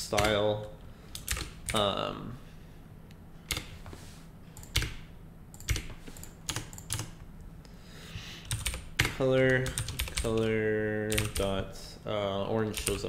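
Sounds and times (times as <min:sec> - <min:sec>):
keyboard typing: 0:00.1 - 0:01.9, 0:03.5 - 0:03.8, 0:04.6 - 0:07.2, 0:08.4 - 0:11.6, 0:12.7 - 0:13.0.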